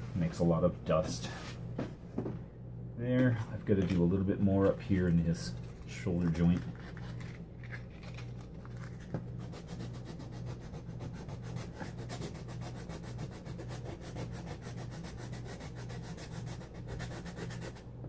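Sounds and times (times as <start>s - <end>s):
steady low hum: 0.0s - 18.0s
sandpaper rubbing: 8.8s - 17.8s.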